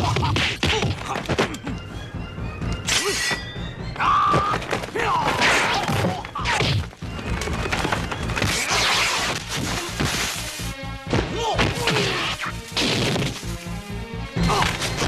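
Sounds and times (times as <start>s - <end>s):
fighters shouting and grunting: 0.0s - 1.7s, 4.0s - 6.9s, 11.1s - 12.5s
background score music: 0.0s - 15.0s.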